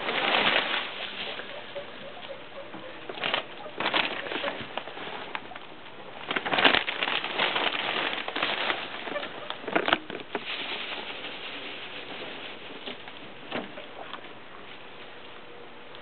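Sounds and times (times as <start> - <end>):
guinea pigs squeaking: 0.0 - 10.4
dry hay rustling and crackling: 0.0 - 16.0.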